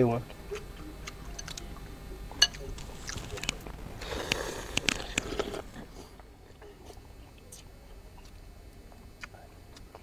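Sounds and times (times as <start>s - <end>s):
person chewing: 2.5s - 10.0s.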